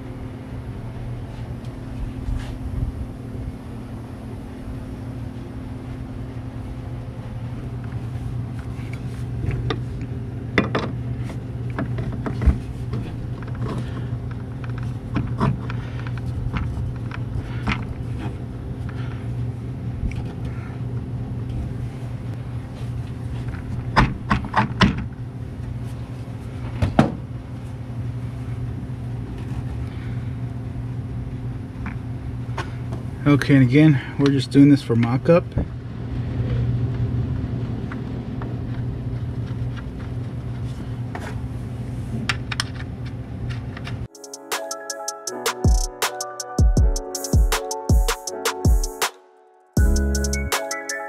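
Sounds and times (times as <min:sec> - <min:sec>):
steady low hum: 0:00.0 - 0:34.6.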